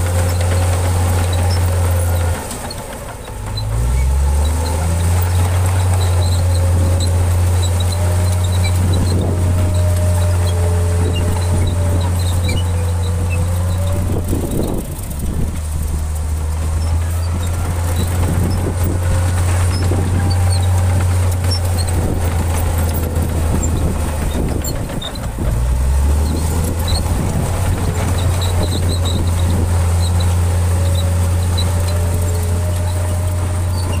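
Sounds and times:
bulldozer diesel engine droning: 0:00.0 - 0:34.0.

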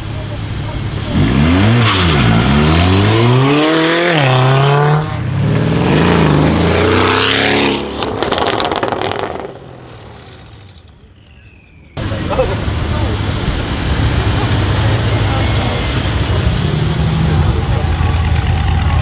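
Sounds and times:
car engine accelerating past: 0:01.0 - 0:10.6
exhaust crackles and pops: 0:07.9 - 0:16.4.

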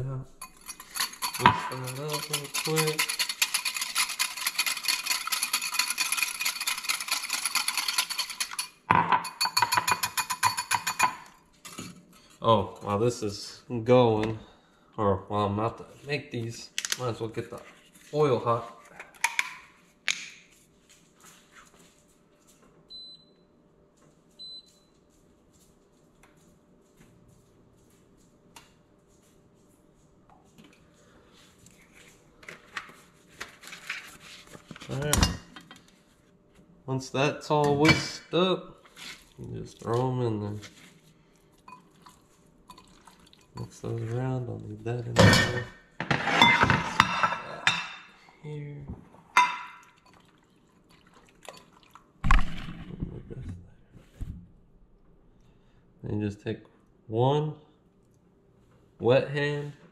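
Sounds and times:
whisk clinking in glass bowl: 0:00.4 - 0:11.3.

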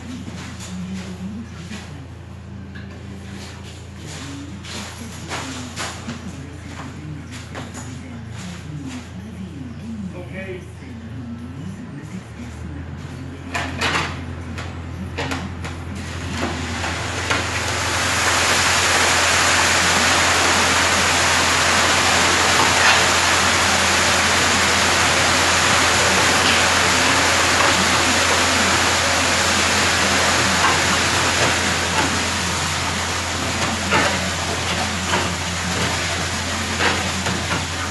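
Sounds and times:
engine humming: 0:12.6 - 0:37.9
wet concrete sliding down chute: 0:16.2 - 0:37.9.

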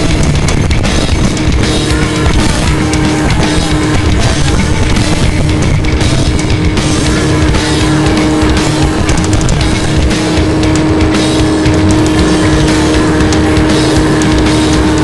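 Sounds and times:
heavy rock music: 0:00.0 - 0:15.0.

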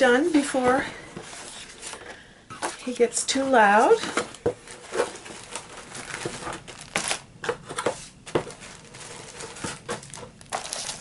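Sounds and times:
plastic bag crinkling: 0:03.9 - 0:07.6, 0:08.2 - 0:11.0.

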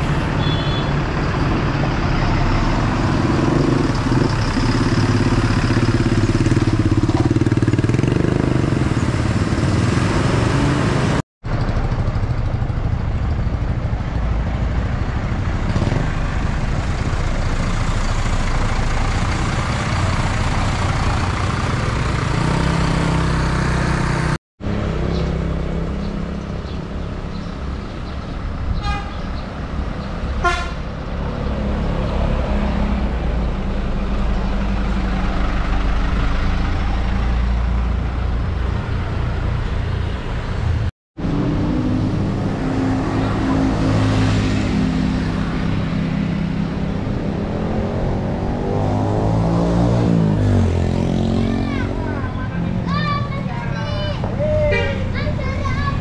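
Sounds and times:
diesel buses driving past: 0:00.0 - 0:56.0
multi-note air horn blasts: 0:30.4 - 0:30.8.

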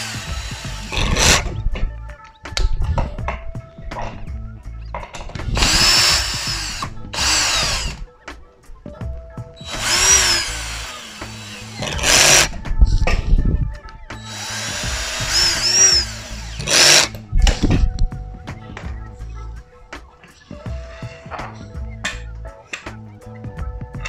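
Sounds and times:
drill driving screws: 0:00.0 - 0:01.5, 0:05.5 - 0:08.0, 0:09.6 - 0:12.5, 0:14.2 - 0:17.2.

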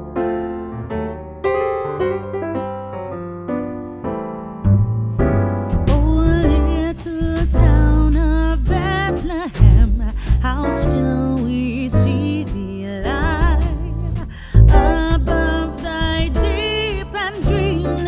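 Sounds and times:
electric piano melody: 0:00.0 - 0:18.0
heavy bass: 0:04.6 - 0:18.0.

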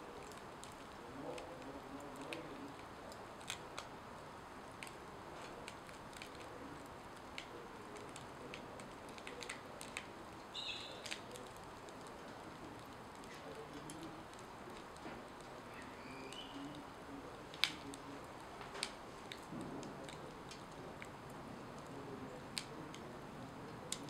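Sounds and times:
steady low hiss: 0:00.0 - 0:24.0
tortilla crackling on griddle: 0:00.0 - 0:24.0
high chirp: 0:10.5 - 0:11.0.

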